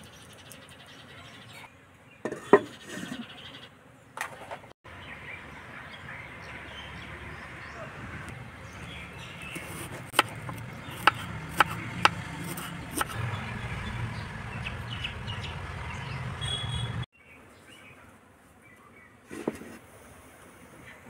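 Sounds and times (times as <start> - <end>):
knife chopping on wooden board: 9.5 - 13.2.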